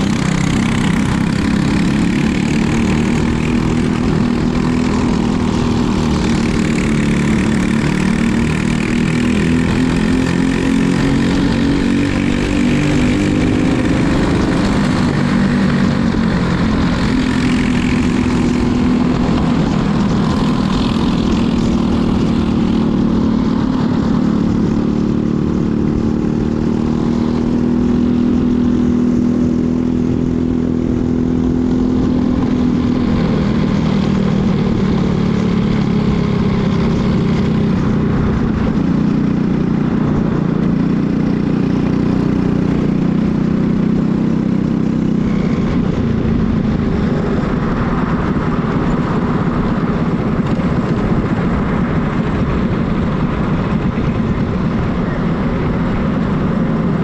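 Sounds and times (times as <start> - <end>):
kart engine buzzing: 0.0 - 57.0.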